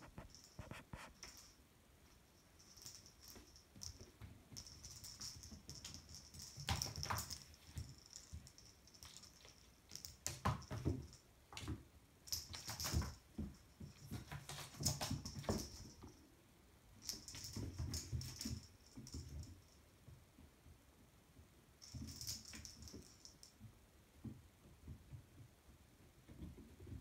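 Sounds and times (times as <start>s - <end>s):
kitten paws pattering on wood floor: 2.7s - 16.1s.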